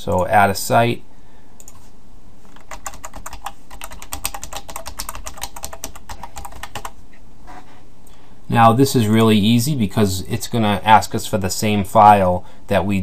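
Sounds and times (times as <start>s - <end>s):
typing on computer keyboard: 2.5s - 7.0s.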